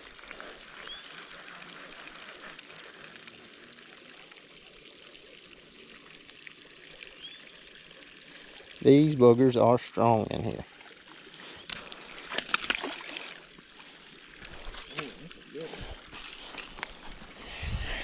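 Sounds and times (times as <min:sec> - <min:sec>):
running water trickle: 0:00.0 - 0:18.0.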